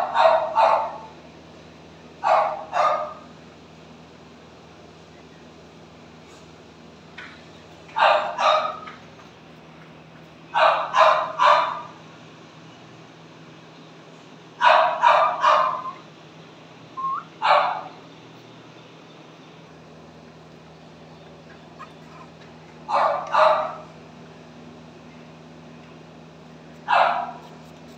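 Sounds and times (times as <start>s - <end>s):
puppy barking in high yaps: 0.0s - 1.1s, 2.2s - 3.3s, 8.0s - 8.9s, 10.5s - 11.9s, 14.6s - 16.0s, 17.2s - 18.0s, 21.8s - 23.9s, 26.8s - 27.5s.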